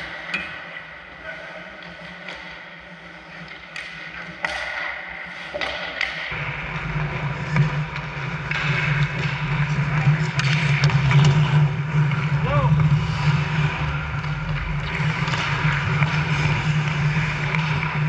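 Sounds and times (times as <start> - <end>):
hockey sticks clacking puck on ice: 1.8 - 18.0
low hum: 6.3 - 18.0.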